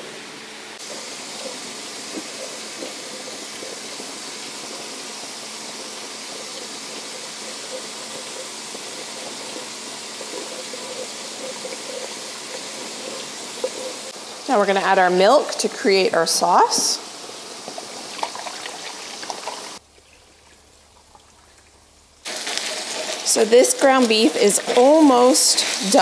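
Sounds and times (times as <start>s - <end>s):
small pops and spatters: 0.8s - 5.0s, 17.2s - 26.0s
ground beef browning in a pan: 0.8s - 19.8s, 20.6s - 26.0s
roux sizzling in a pot: 0.8s - 26.0s.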